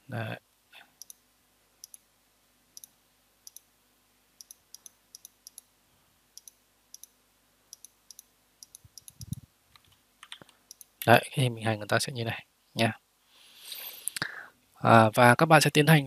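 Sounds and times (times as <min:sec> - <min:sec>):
computer mouse clicking: 0:03.5 - 0:03.7, 0:04.4 - 0:05.7, 0:06.4 - 0:10.9.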